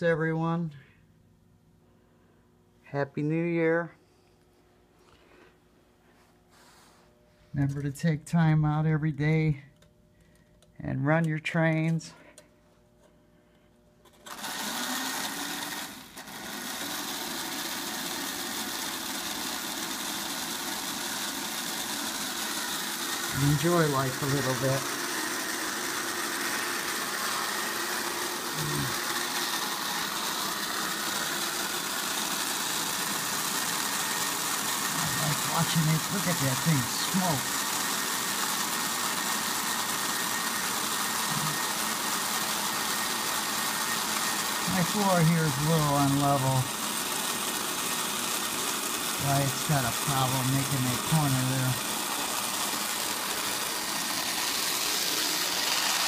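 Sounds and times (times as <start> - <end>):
model train motor whir: 14.1 - 56.0
model train running on track: 34.8 - 37.7, 44.6 - 46.7, 49.2 - 51.9.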